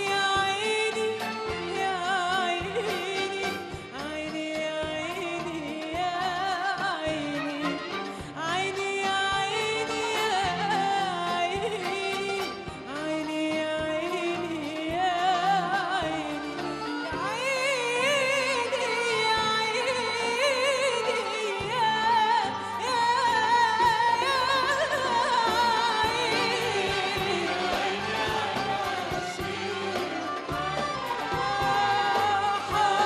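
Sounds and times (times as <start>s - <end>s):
orchestral accompaniment: 0.0s - 33.0s
woman singing: 0.0s - 33.0s
mixed chorus singing: 25.0s - 33.0s.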